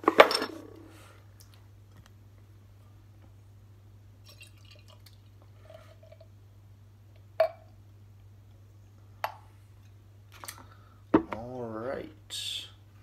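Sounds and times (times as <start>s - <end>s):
liquid trickling and glugging: 4.2s - 6.3s.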